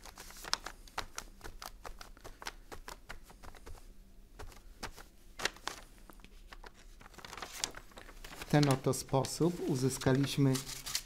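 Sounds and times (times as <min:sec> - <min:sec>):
sponge tapping on paper: 0:01.0 - 0:03.8.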